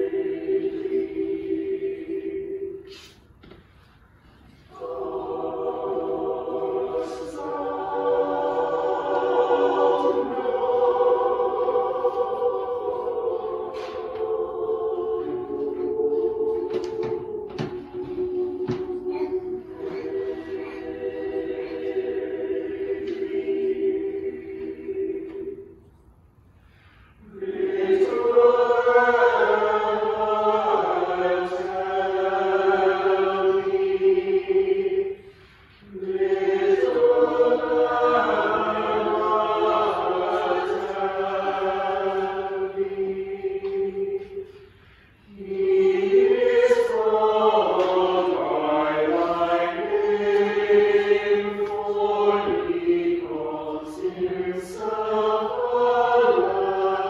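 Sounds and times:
choir singing: 0:00.0 - 0:57.0.

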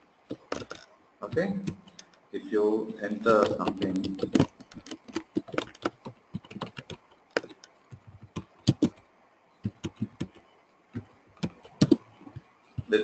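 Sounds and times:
typing on computer keyboard: 0:00.3 - 0:02.1, 0:03.3 - 0:09.0, 0:09.6 - 0:10.4, 0:11.0 - 0:13.0.

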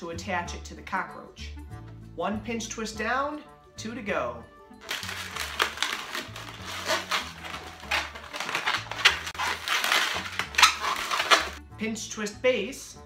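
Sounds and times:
balloon squeaking and rubbing: 0:04.8 - 0:11.6.

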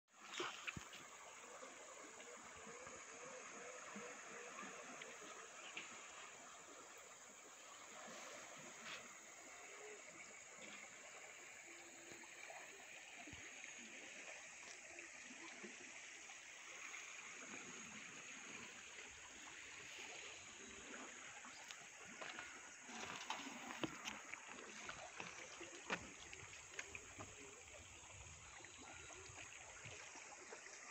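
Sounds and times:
river water flowing: 0:00.1 - 0:30.9
small knocks and splashes: 0:00.2 - 0:01.3, 0:21.5 - 0:27.5.

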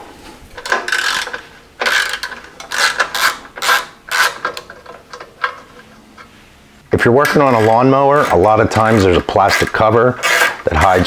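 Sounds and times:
ratchet wrench clicking: 0:00.9 - 0:05.2.

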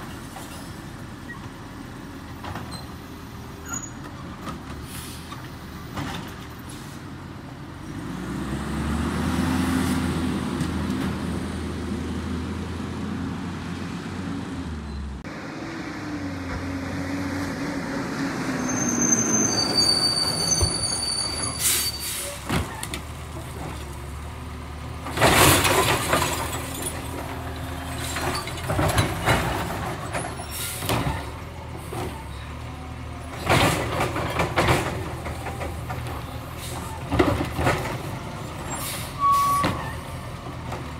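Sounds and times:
brake squeals: 0:00.0 - 0:01.6, 0:02.5 - 0:07.1, 0:14.8 - 0:15.2, 0:18.3 - 0:23.1, 0:25.2 - 0:40.4
air brake hissing: 0:04.8 - 0:05.4.

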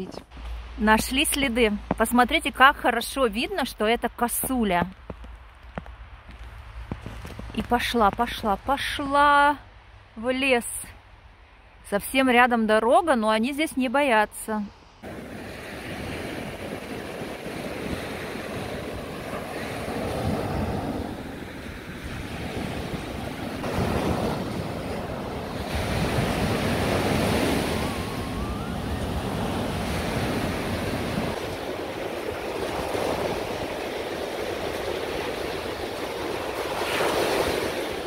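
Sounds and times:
surf breaking on sandy beach: 0:15.0 - 0:38.0.

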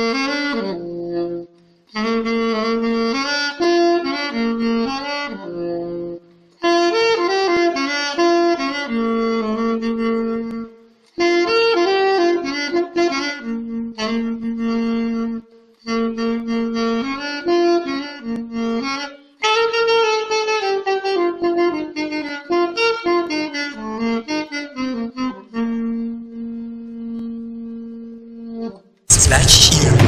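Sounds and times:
alto saxophone melody: 0:00.0 - 0:29.0.

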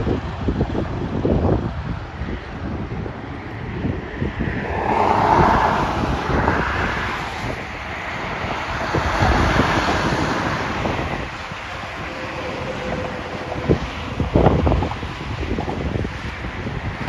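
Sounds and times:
road traffic noise: 0:00.0 - 0:17.0
wind buffeting microphone: 0:00.0 - 0:17.0
truck passing close: 0:04.2 - 0:16.1.

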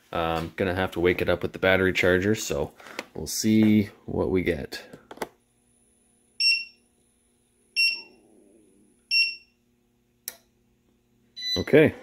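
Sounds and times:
faint steady hum: 0:00.1 - 0:12.0
short electronic beeps: 0:07.8 - 0:08.2
click: 0:10.2 - 0:10.5.

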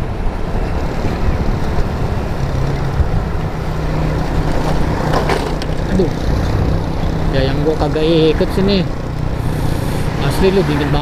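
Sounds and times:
motorcycle engine hum: 0:00.0 - 0:11.0
wind buffeting microphone: 0:00.3 - 0:10.2.

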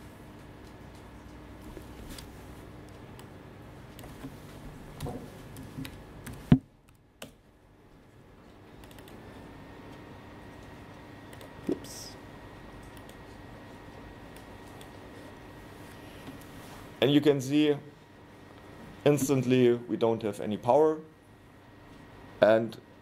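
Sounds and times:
low room hum: 0:00.0 - 0:23.0
laptop keyboard and mouse clicks: 0:08.8 - 0:09.2.

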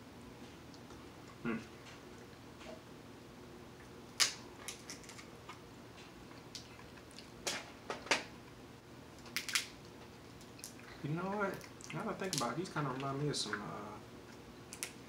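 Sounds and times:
shells cracking by hand: 0:09.2 - 0:09.8.

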